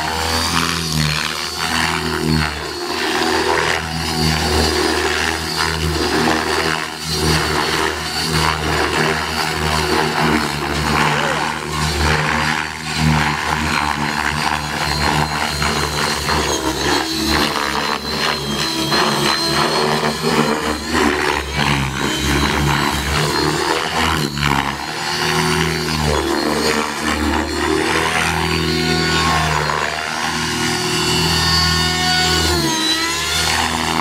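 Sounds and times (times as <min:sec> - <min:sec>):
rc helicopter motor and rotor whine: 0:00.0 - 0:34.0.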